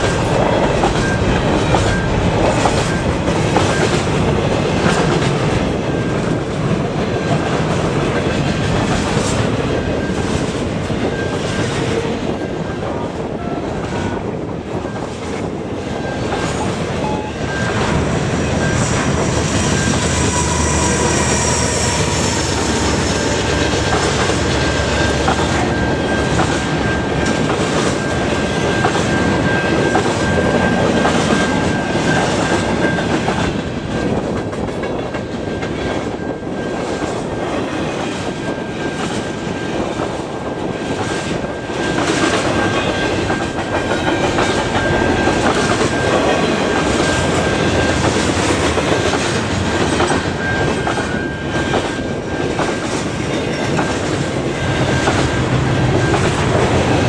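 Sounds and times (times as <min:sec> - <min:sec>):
train wheels clacking on rails: 0:00.0 - 0:57.0
steady high-pitched tone: 0:15.9 - 0:33.7, 0:41.2 - 0:57.0.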